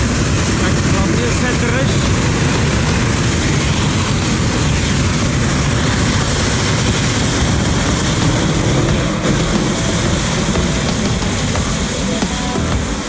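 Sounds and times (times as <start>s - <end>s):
propane burner roaring: 0.0s - 13.0s.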